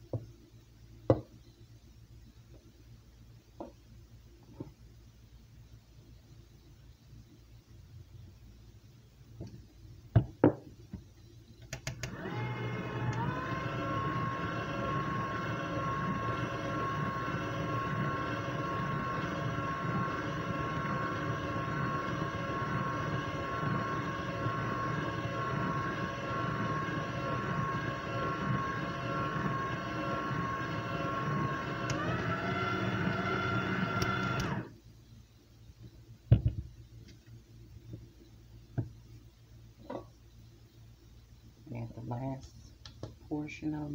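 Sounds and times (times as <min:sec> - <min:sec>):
stand mixer motor whining: 0:11.8 - 0:34.7.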